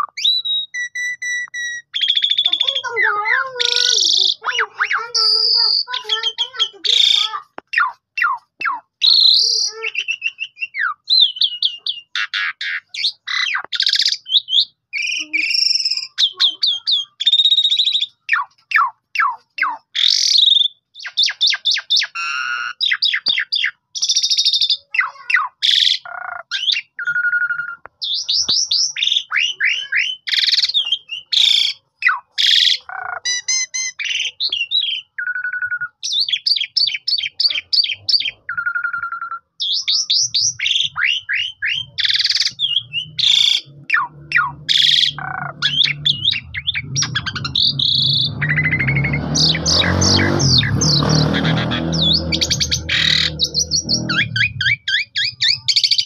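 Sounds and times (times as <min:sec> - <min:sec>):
starling singing: 0:00.0 - 0:56.0.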